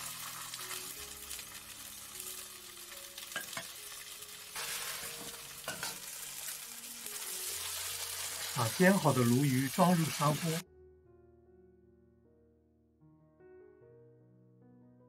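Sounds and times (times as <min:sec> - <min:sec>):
fish sizzling in hot oil: 0:00.0 - 0:10.6.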